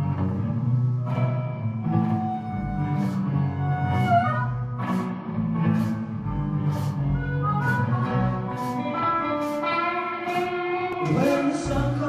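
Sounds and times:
blues band playing: 0.0 - 12.0
electric guitar: 0.0 - 12.0
cymbal strokes: 2.2 - 4.2, 4.8 - 11.4.

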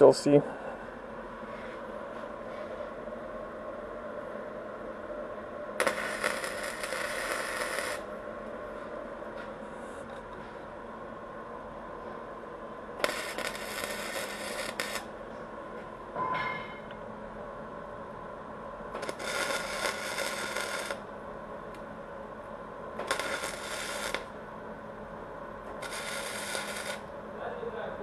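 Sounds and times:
arc welding crackling: 5.8 - 8.1, 13.0 - 15.2, 18.9 - 21.1, 22.9 - 24.4, 25.6 - 27.2.

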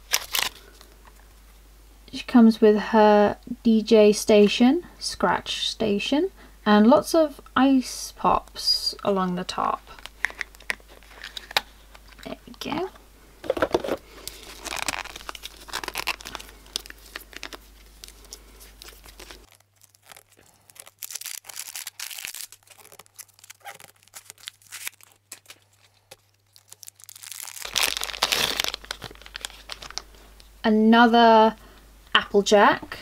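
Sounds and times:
foil wrapper tearing and crinkling: 0.0 - 0.8, 13.5 - 30.2.

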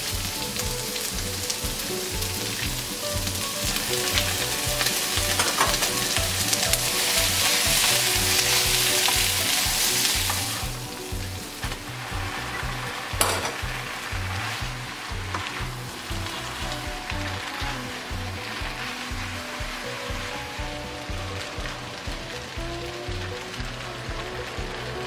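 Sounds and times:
food sizzling in a frying pan: 0.0 - 25.0.

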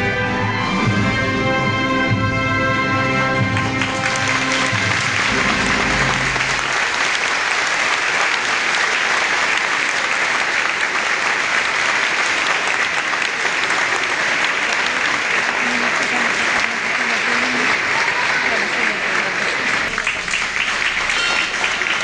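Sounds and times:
held music notes: 1.2 - 6.8
crowd applauding: 3.3 - 22.0.

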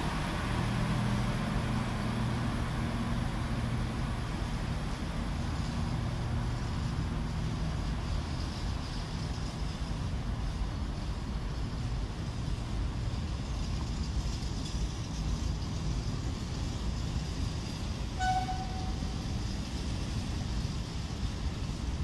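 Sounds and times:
freight train rumbling past: 0.0 - 22.0
train horn blast: 18.2 - 19.3.

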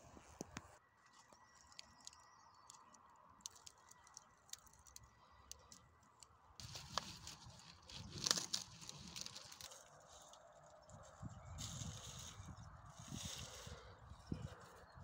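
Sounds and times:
rustling handling noise: 6.6 - 13.7.

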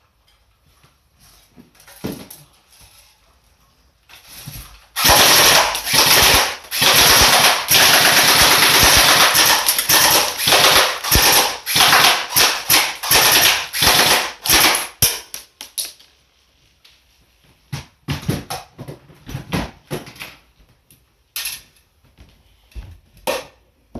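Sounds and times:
airsoft rifle rapid bursts: 5.0 - 15.1.

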